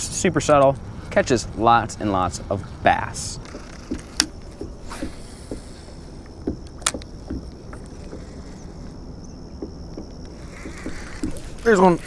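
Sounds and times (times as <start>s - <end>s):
wind and water rumble: 0.0s - 12.0s
soft knocks: 3.4s - 11.6s.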